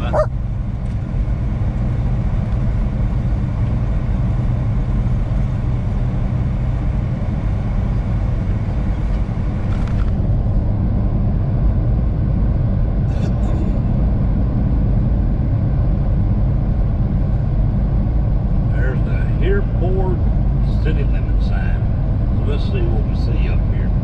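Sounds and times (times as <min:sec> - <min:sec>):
truck engine and road drone: 0:00.0 - 0:24.0.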